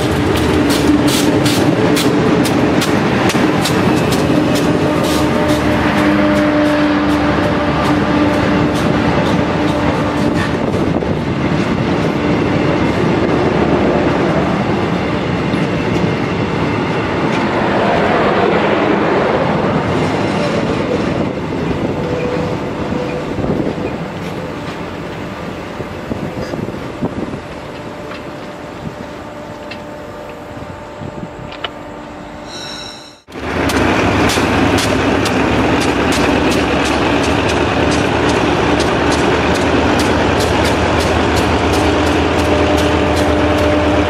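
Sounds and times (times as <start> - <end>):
train wheels clacking over rail joints: 0.0 - 13.2, 33.3 - 44.0.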